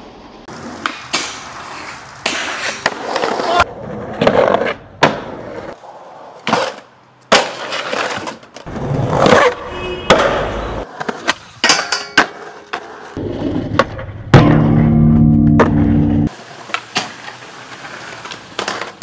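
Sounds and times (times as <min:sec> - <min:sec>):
skateboard wheels rolling on concrete: 0:00.0 - 0:19.0
skateboard popping and landing: 0:00.5 - 0:19.0
skateboard grinding metal rail: 0:07.4 - 0:19.0.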